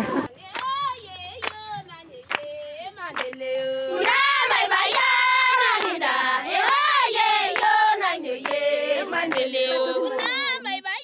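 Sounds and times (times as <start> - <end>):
women singing together: 0.0 - 11.0
hand claps: 0.5 - 2.5, 3.1 - 3.4, 5.8 - 6.9, 7.5 - 7.8, 8.4 - 8.7, 9.3 - 9.5, 10.1 - 10.5.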